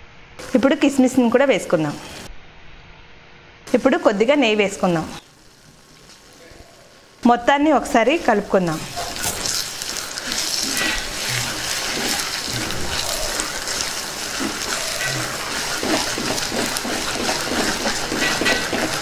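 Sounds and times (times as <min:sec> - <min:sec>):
food sizzling in ghee: 0:03.7 - 0:19.0
spatula scraping pot: 0:08.0 - 0:19.0.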